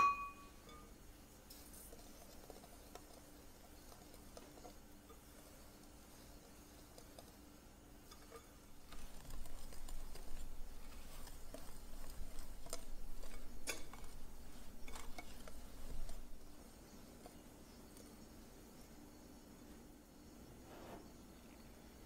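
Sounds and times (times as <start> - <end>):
whisk clinking on glass: 0.0 - 7.4, 8.0 - 18.0
whisk swishing through flour: 0.0 - 19.8.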